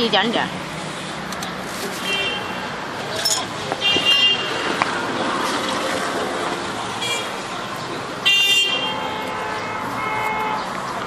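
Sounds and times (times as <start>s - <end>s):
street traffic noise: 0.0s - 11.0s
vehicle horn toot: 8.2s - 10.7s.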